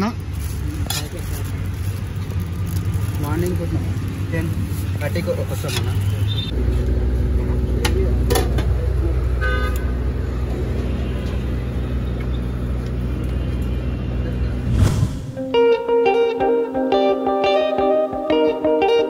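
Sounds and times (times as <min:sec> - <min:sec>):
traffic engines rumbling: 0:00.0 - 0:16.0
vehicle horn toot: 0:09.4 - 0:10.0.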